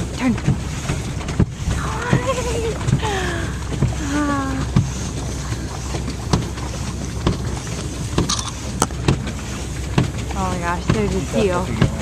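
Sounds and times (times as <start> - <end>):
boat motor running: 0.0 - 12.0.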